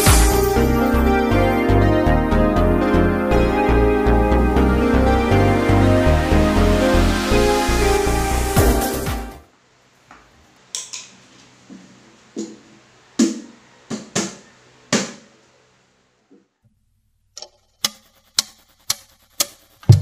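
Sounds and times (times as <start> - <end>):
sharp drumstick hits: 17.8 - 20.0.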